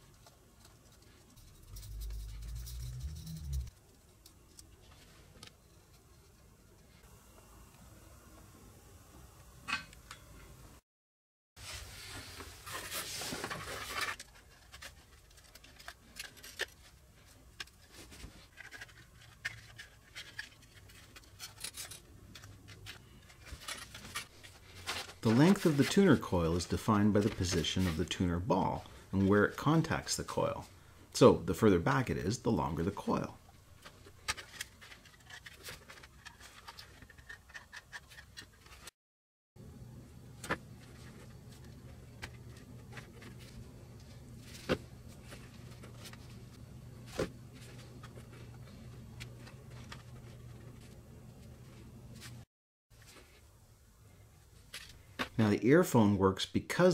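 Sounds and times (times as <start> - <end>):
light clicks and scratches: 0.0 - 7.0
rustling scrape of parts: 0.1 - 7.0, 11.6 - 28.1, 33.7 - 38.9.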